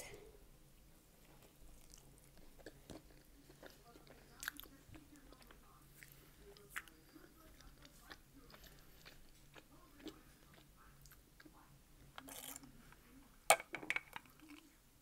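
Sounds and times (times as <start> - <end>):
person chewing: 1.2 - 11.6, 12.2 - 12.7.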